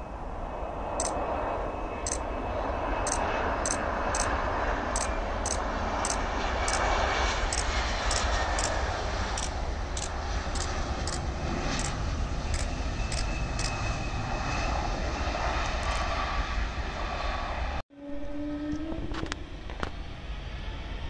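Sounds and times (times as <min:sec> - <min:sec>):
distant airliner engines rumbling: 0:00.0 - 0:21.0.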